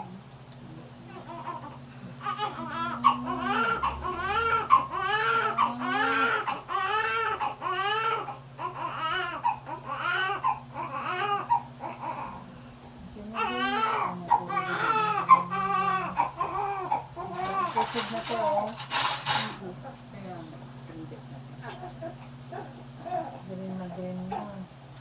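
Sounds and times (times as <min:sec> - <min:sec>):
newborn baby crying: 0:01.1 - 0:12.5, 0:13.4 - 0:18.6.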